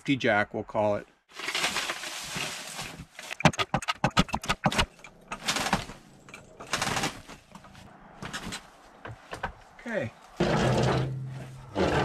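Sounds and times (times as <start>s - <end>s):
wood and tools clattering: 1.3s - 9.6s, 10.4s - 12.0s
footsteps crunching through snow: 1.6s - 3.3s.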